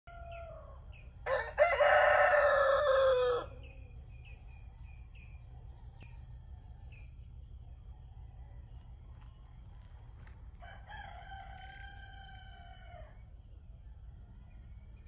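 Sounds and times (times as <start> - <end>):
rooster crowing: 0.1 - 3.7, 10.6 - 13.3
faint rooster crow: 0.1 - 3.9, 7.8 - 13.5.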